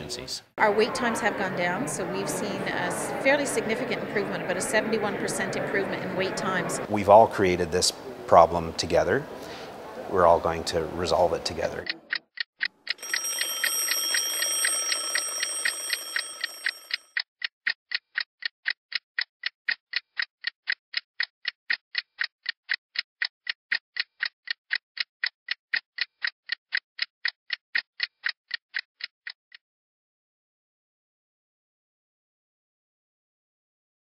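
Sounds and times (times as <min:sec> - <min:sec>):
clock ticking: 0:11.1 - 0:29.4
high ringing tone: 0:13.0 - 0:17.1.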